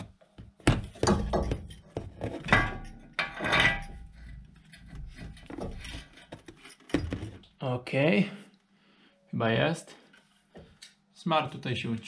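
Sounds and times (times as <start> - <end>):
metal scraping on metal: 2.6 - 6.8.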